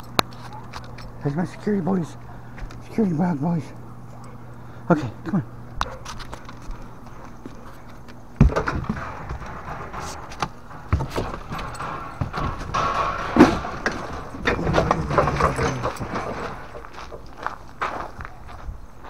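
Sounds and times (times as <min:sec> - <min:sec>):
knocks and rustling: 0:05.8 - 0:18.2
footsteps: 0:05.8 - 0:19.0.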